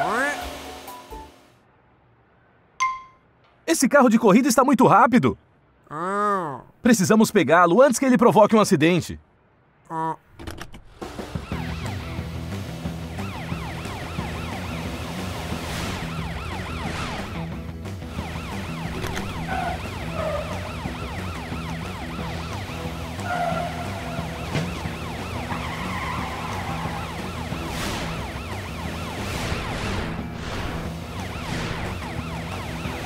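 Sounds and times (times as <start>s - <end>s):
cartoon police siren wailing: 13.0s - 17.4s, 18.1s - 29.8s, 30.9s - 33.0s
cars whooshing past: 14.8s - 17.4s, 25.5s - 31.9s.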